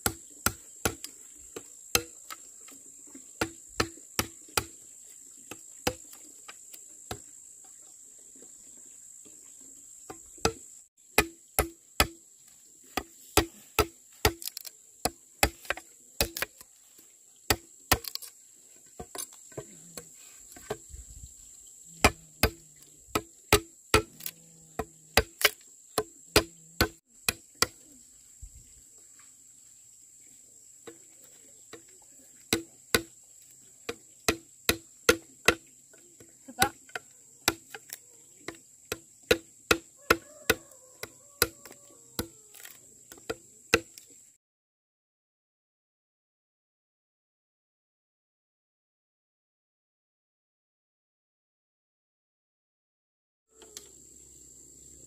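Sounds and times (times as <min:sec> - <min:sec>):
blade chopping wood: 0:00.0 - 0:02.5, 0:03.4 - 0:04.8, 0:05.5 - 0:06.2, 0:10.1 - 0:10.6, 0:11.2 - 0:12.2, 0:12.9 - 0:16.6, 0:17.5 - 0:18.3, 0:22.0 - 0:27.8, 0:32.5 - 0:33.2, 0:33.9 - 0:35.7, 0:36.6 - 0:44.0
high insect trill: 0:00.0 - 0:44.4.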